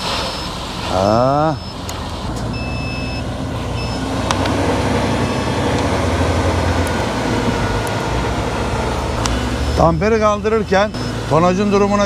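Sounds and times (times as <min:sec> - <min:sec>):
diesel truck engine running: 0:00.0 - 0:12.0
short high beep: 0:00.2 - 0:00.6, 0:01.5 - 0:01.9, 0:02.5 - 0:03.2.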